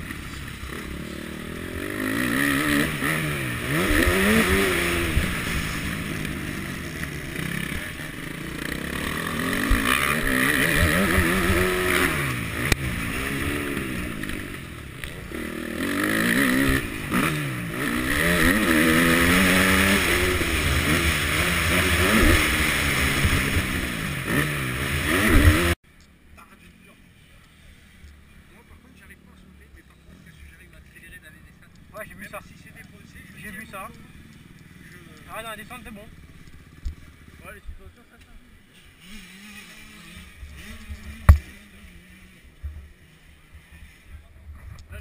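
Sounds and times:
motorbike engine revving: 0.0s - 25.8s, 38.7s - 44.2s.

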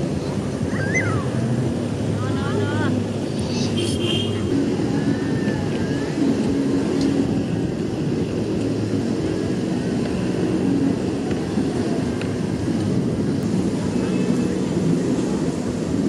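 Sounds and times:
people's voices: 0.0s - 7.5s
passing vehicle traffic: 0.0s - 16.0s.

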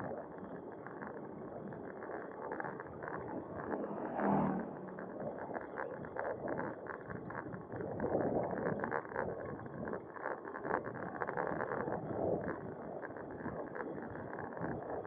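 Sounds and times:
road and wind noise: 0.0s - 11.1s.

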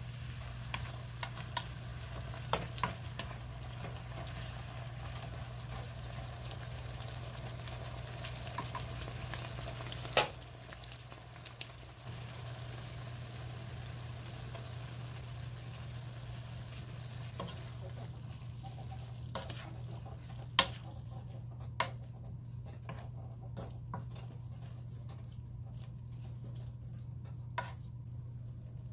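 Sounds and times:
vegetables sizzling in a pan: 0.0s - 22.0s.

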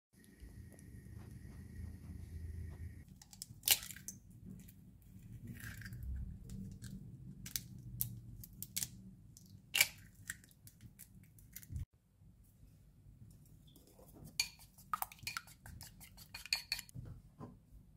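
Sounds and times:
low hum with high tone: 0.2s - 3.0s.

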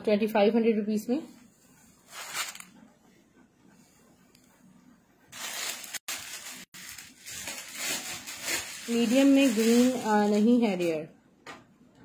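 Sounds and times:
plastic packets crinkling: 5.4s - 10.6s.

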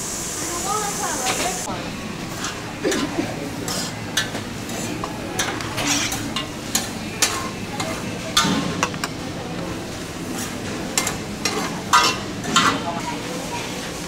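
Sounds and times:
food sizzling on a griddle: 0.0s - 5.2s
spoon clinking on steel containers: 11.0s - 12.8s.

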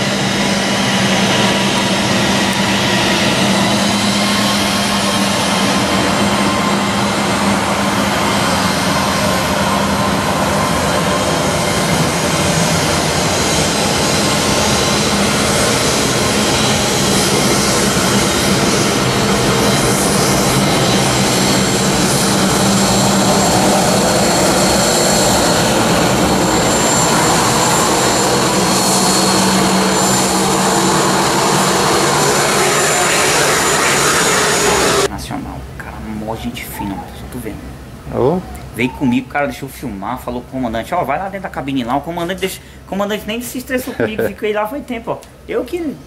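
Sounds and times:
high thin engine whine: 0.0s - 35.2s
jet engines roaring: 0.0s - 46.0s.

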